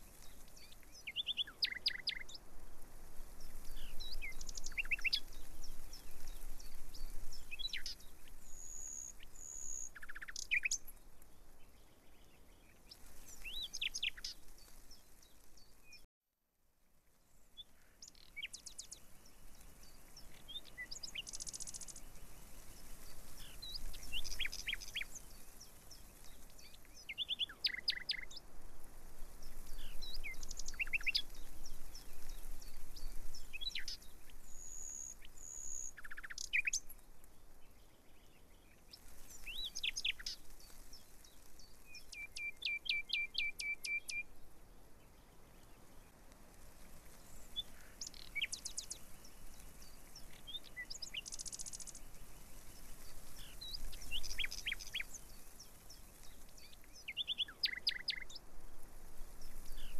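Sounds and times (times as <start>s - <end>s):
faint background hiss: 0.0s - 59.9s
birds chirping and trilling: 0.4s - 2.4s, 3.4s - 11.0s, 18.0s - 28.4s, 29.4s - 37.0s, 39.3s - 41.0s, 47.2s - 52.0s, 52.6s - 58.4s.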